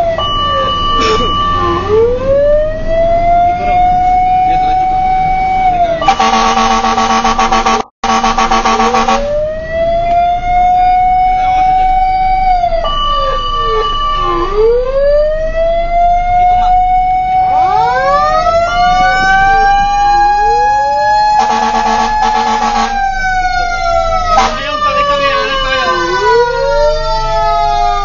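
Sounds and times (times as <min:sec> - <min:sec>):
fire truck sirens wailing: 0:00.0 - 0:28.0
pulsing horn blast: 0:05.8 - 0:09.5, 0:16.6 - 0:27.2.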